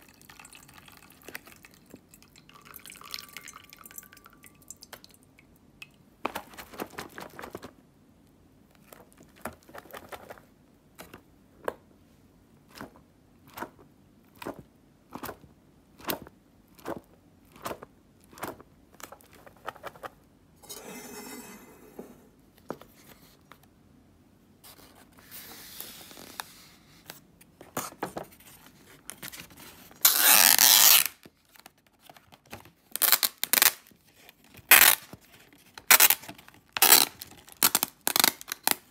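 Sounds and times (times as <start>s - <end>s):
water dripping into a bowl: 0.0s - 6.1s.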